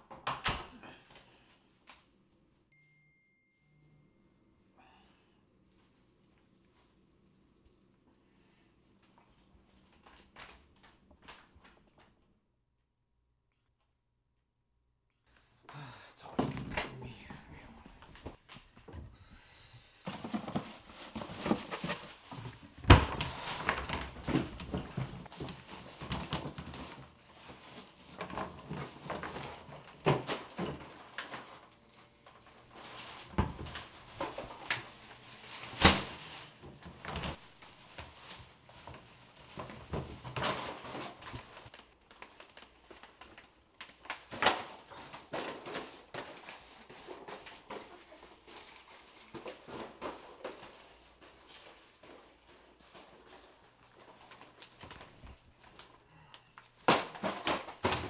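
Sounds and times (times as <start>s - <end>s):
plastic bag rustling: 19.9s - 58.0s.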